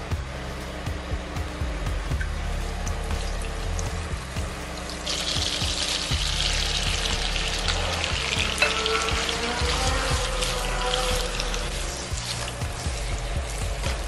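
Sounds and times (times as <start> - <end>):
chicken sizzling in a pan: 5.0 - 14.0.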